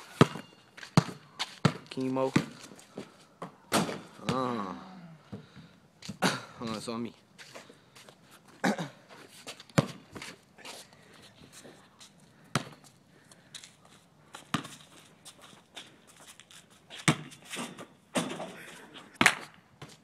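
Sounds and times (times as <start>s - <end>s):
basketball bouncing on asphalt: 0.0s - 4.5s, 9.5s - 10.4s, 12.5s - 13.0s, 14.3s - 15.1s, 17.0s - 18.4s, 19.2s - 20.0s
basketball rim and backboard rattling: 17.1s - 18.5s.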